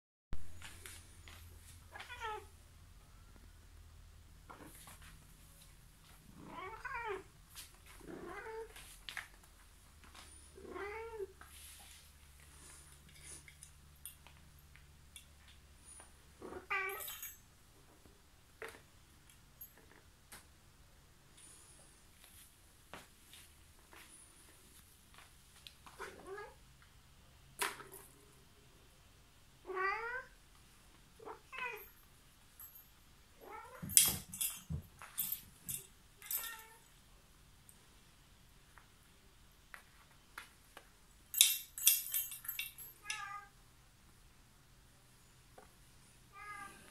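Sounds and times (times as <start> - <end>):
cat meowing: 1.9 - 2.5, 6.4 - 7.3, 46.3 - 46.9.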